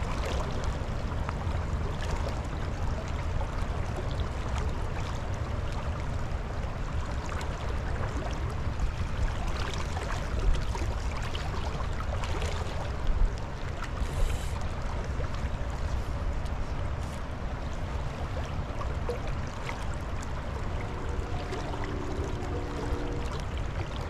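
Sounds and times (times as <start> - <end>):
creek water rushing: 6.9 - 24.0.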